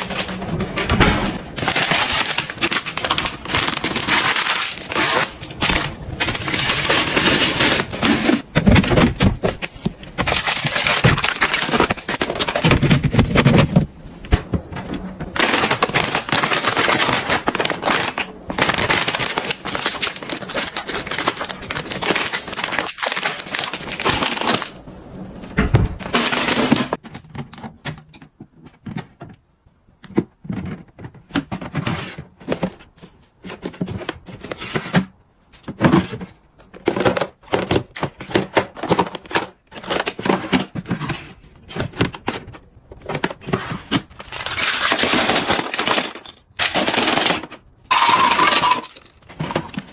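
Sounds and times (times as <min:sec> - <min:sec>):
plastic pack crinkling: 0:01.6 - 0:13.8, 0:14.7 - 0:24.8.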